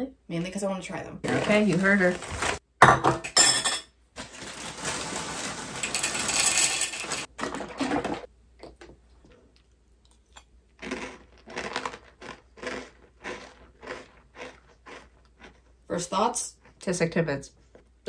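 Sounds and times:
cereal crunching: 4.2 - 7.3, 10.0 - 15.7
cereal pouring into a bowl: 4.2 - 7.3.

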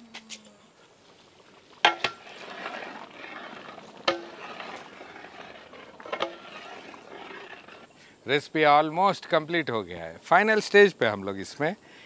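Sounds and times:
gravy sizzling: 1.1 - 8.0.

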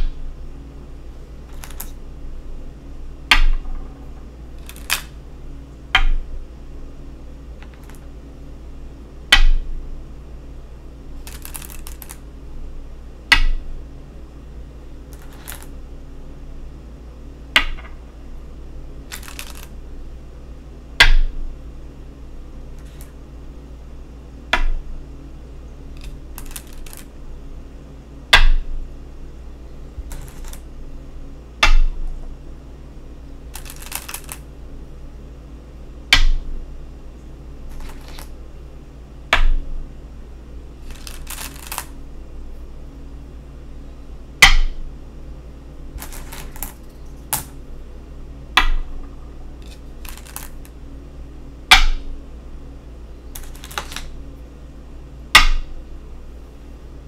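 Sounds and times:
stones clattering: 1.5 - 1.9, 19.1 - 19.7, 33.6 - 34.4, 40.8 - 41.9, 46.0 - 47.5, 49.6 - 50.7, 53.4 - 54.1
stones clicking on wooden board: 1.5 - 2.0, 4.6 - 5.1, 7.6 - 8.0, 11.2 - 12.2, 15.1 - 15.7, 19.1 - 19.7, 22.8 - 23.1, 26.0 - 27.1, 30.1 - 30.6, 33.6 - 34.4, 37.7 - 38.3, 40.9 - 41.9, 46.0 - 47.5, 49.6 - 50.7, 53.4 - 54.1.

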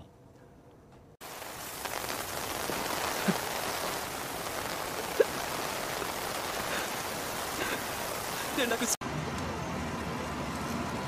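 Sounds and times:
heavy rain falling: 1.2 - 9.0.

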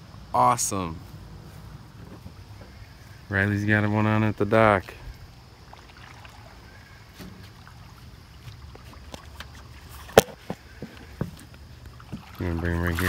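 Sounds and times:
fish splashing at water surface: 5.2 - 13.0.

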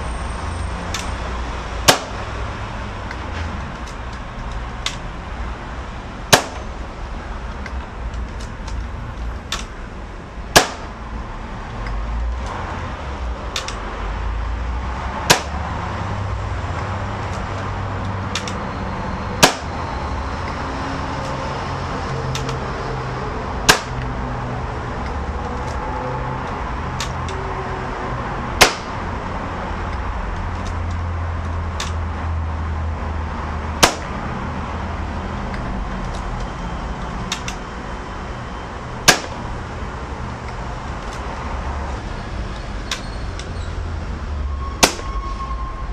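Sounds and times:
air rifle shots: 1.8 - 2.4, 6.3 - 6.8, 10.5 - 11.0, 15.2 - 15.6, 19.4 - 19.8, 23.6 - 24.0, 28.6 - 29.0, 33.8 - 34.1, 39.0 - 39.5, 44.8 - 45.0.

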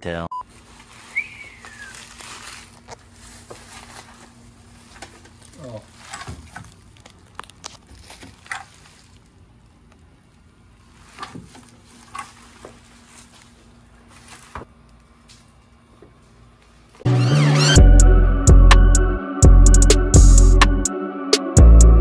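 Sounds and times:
plastic packaging crinkling: 0.6 - 14.6.

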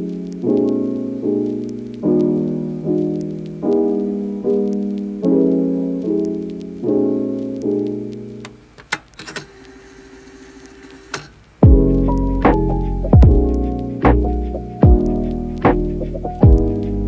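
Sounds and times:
piano chords ringing: 0.0 - 8.6, 11.6 - 17.0
faint scratchy noise: 0.0 - 17.0
clicks: 8.4 - 11.4.

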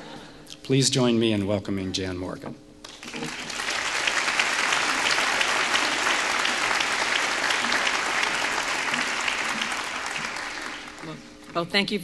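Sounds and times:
audience applauding: 2.9 - 11.3.

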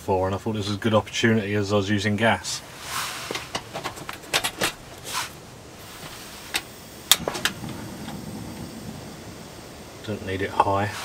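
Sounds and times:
gas burner hissing: 0.3 - 11.0
sharp loud click: 6.6 - 8.2.

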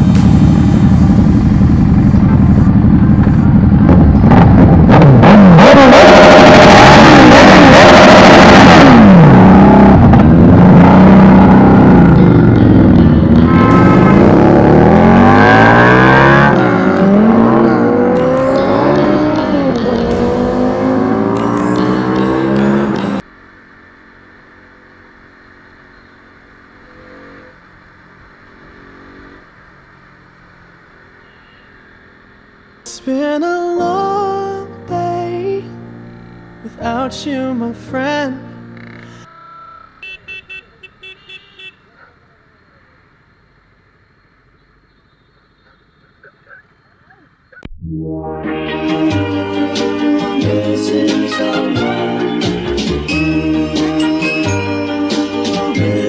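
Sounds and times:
motorcycle engine revving: 0.0 - 32.8.

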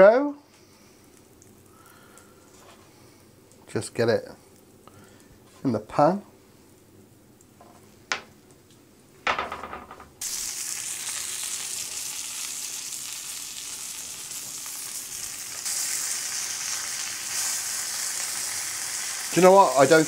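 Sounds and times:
fillets sizzling in oil: 10.2 - 20.0.

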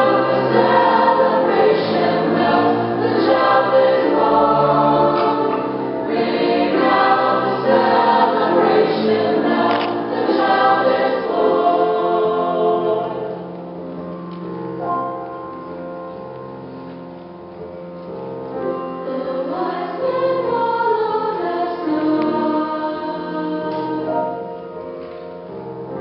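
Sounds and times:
mixed choir singing: 0.0 - 13.5, 18.9 - 24.5
piano chords: 0.0 - 26.0.

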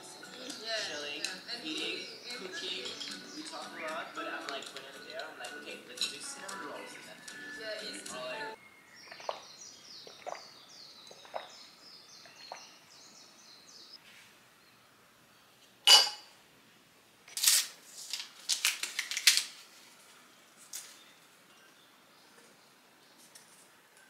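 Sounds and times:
cutlery clicking against bowl: 2.8 - 3.6, 4.4 - 6.6
metal clink: 15.9 - 16.2.

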